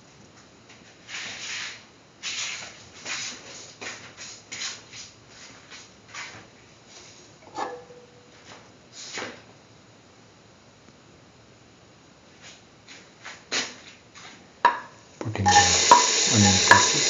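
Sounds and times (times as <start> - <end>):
oil spitting and sizzling in pan: 15.5 - 17.0.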